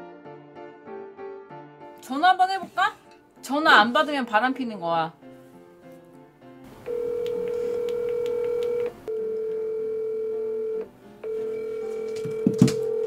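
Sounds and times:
phone ringback tone: 6.9 - 13.0.

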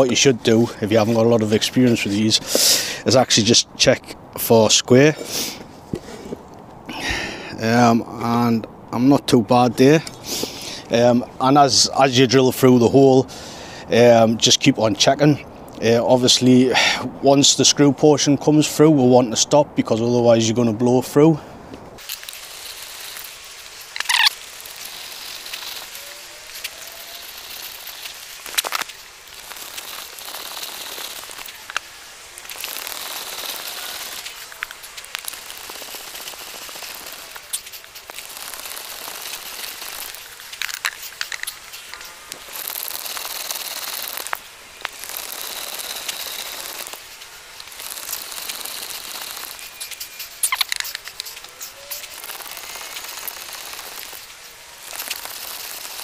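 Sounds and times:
auger bit rasping through wood: 22.0 - 56.0
sharp clicks: 23.9 - 26.0, 26.6 - 56.0.

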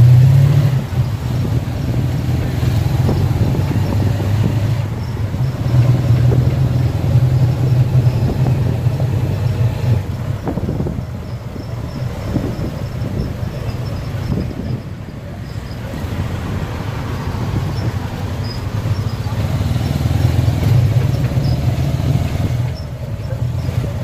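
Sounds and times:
motorbike engine droning: 0.0 - 16.6
road and traffic noise: 0.0 - 24.0.

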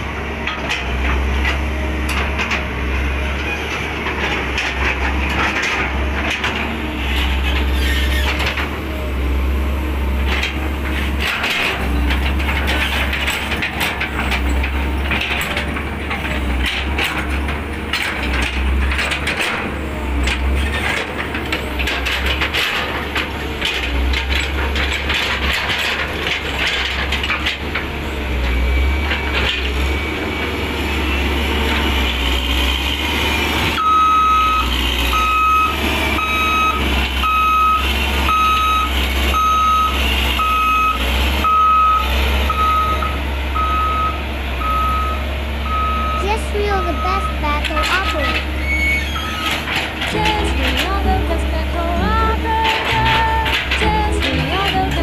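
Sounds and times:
diesel engine under load: 0.0 - 55.0
reversing alarm beeps: 28.4 - 31.6, 33.3 - 49.6.

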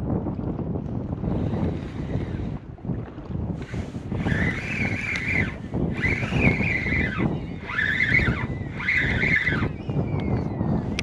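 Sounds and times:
wind buffeting microphone: 0.0 - 11.0
fishing reel gear whine: 1.4 - 2.6, 3.6 - 11.0.

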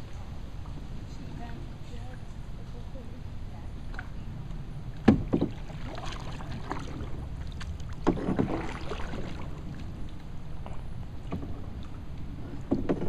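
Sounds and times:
canoe paddle splashing water: 4.9 - 13.0.

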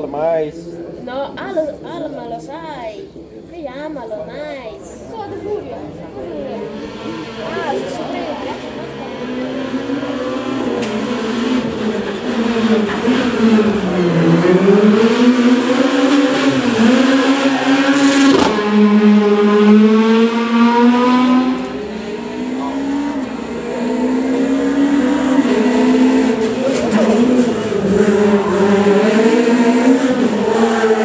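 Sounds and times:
car engine approaching: 4.9 - 31.0
rally car engine revving: 6.5 - 31.0.

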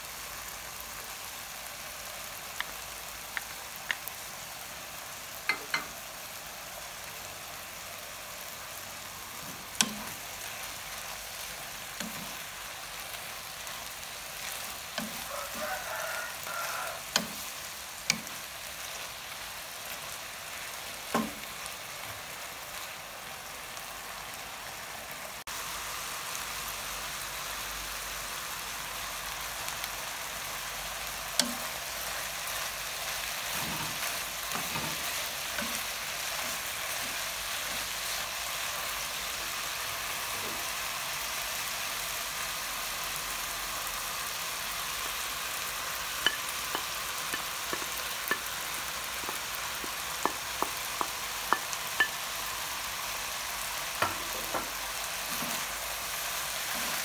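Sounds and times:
chicken sizzling in oil: 0.0 - 57.0
spatula knocking against pan: 46.3 - 48.5, 49.2 - 52.2.

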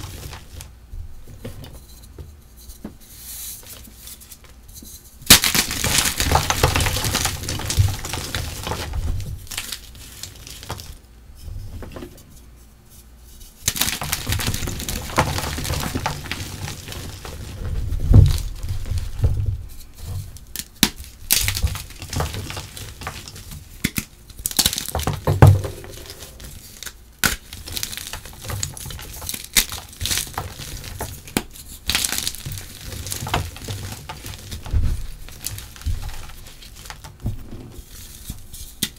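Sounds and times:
chalk crunching and crumbling: 2.6 - 11.0, 12.9 - 38.9
chalk pieces snapping: 20.5 - 25.2, 25.9 - 34.7.

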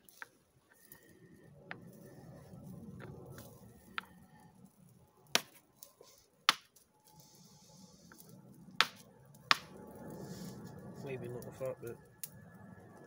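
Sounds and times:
hammerstone striking flint: 5.4 - 5.6, 6.5 - 6.8, 8.8 - 9.7.

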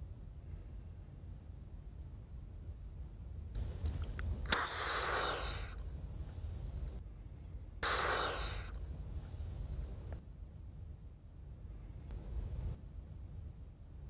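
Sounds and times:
rushing breath: 4.5 - 10.1.

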